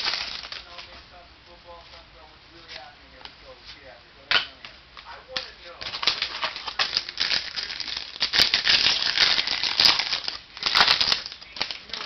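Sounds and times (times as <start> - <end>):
foil wrapper crinkling: 0.0 - 1.0, 5.3 - 12.0.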